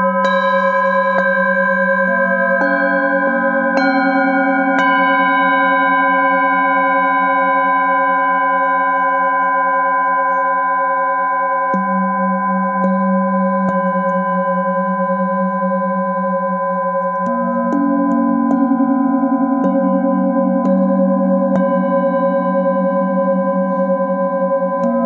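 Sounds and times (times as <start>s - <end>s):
singing bowls ringing: 0.0s - 25.0s
mallet strikes on bowl: 11.7s - 14.3s, 19.4s - 23.8s.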